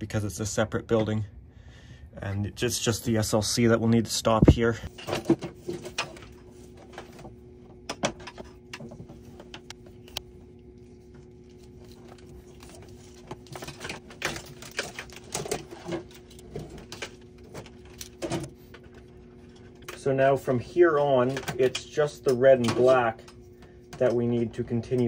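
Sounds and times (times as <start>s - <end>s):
faint steady hum: 0.0s - 25.0s
cable clicking and scraping: 7.9s - 20.0s.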